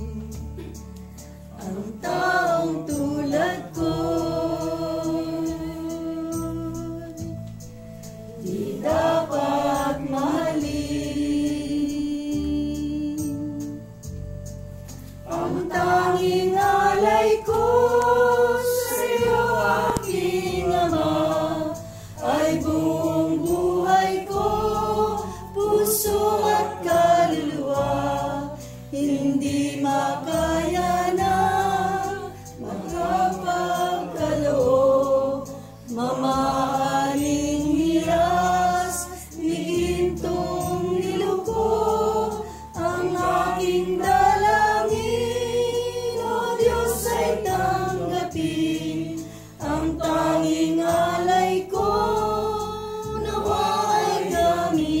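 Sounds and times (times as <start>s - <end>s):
group singing a hymn: 0.0s - 14.2s, 14.9s - 55.0s.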